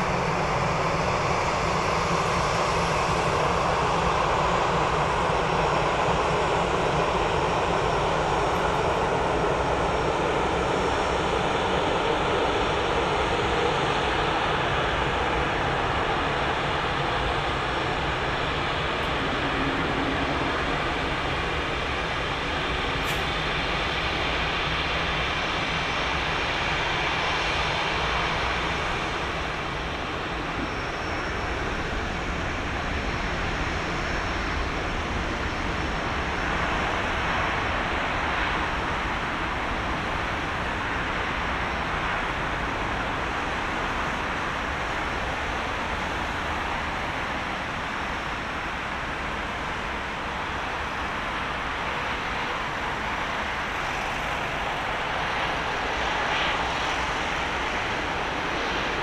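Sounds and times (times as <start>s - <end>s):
jet engine noise landing: 0.0s - 59.0s.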